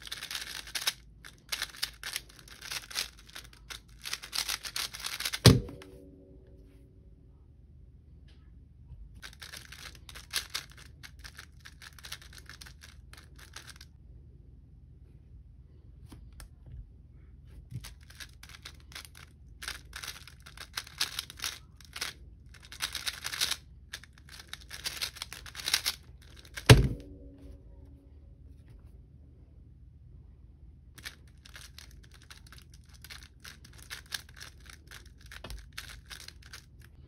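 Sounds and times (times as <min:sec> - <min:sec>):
plastic cube clicking: 0:00.0 - 0:05.6, 0:09.2 - 0:13.8, 0:17.8 - 0:26.8, 0:31.0 - 0:36.7
cube thumping down: 0:04.3 - 0:05.9, 0:24.8 - 0:27.2.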